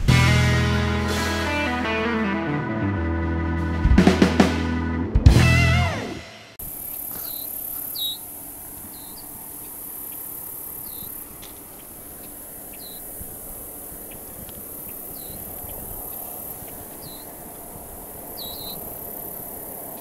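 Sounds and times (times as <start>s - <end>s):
bird chirping: 1.6s - 13.2s, 14.1s - 17.5s, 18.2s - 20.0s
low rumble: 2.4s - 6.3s.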